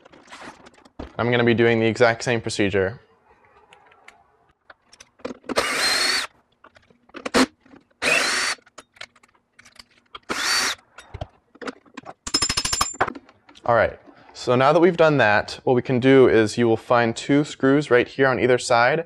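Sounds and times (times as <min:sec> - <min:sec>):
tools and parts clattering: 0:00.0 - 0:01.6, 0:04.6 - 0:05.6, 0:06.5 - 0:08.0, 0:08.6 - 0:14.4
cordless drill motor whining: 0:05.6 - 0:06.3, 0:08.0 - 0:08.6, 0:10.3 - 0:10.8.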